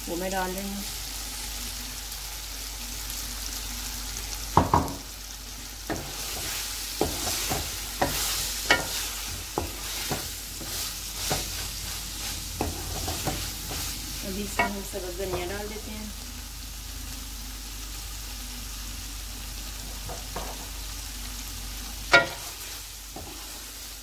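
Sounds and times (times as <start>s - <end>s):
hot oil sizzling: 0.0s - 24.0s
wooden spoon knocking pan: 4.6s - 5.0s, 19.9s - 20.7s.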